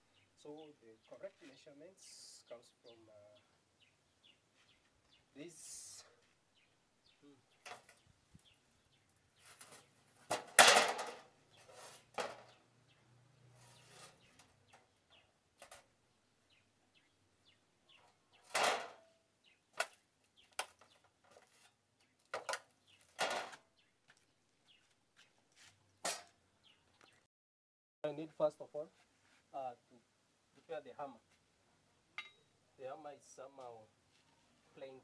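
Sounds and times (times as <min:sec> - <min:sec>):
steel sheet knocking and clattering: 0:10.3 - 0:11.3, 0:18.5 - 0:19.0.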